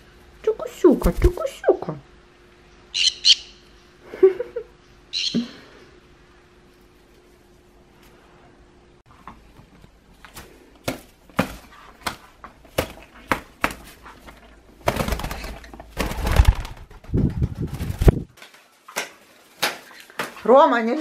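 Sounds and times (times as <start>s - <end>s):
bird wings flapping: 14.8s - 20.4s.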